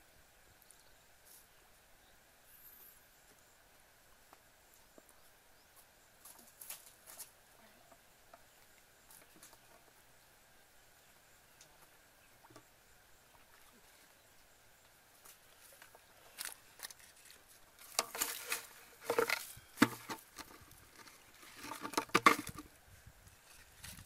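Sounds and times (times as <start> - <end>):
rustling in dry grass and leaves: 4.7 - 7.8, 15.1 - 24.0.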